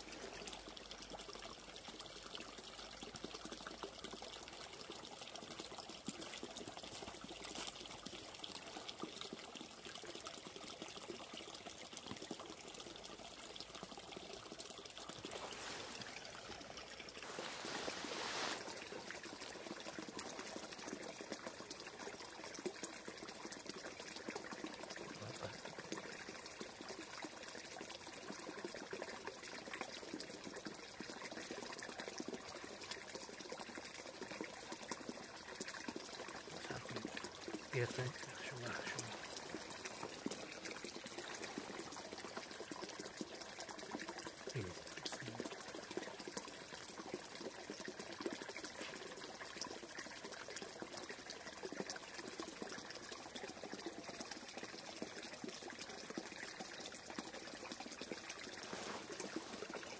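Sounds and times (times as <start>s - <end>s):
water running and trickling: 0.0s - 59.9s
water rushing: 15.1s - 22.2s, 35.8s - 46.4s, 58.0s - 59.9s.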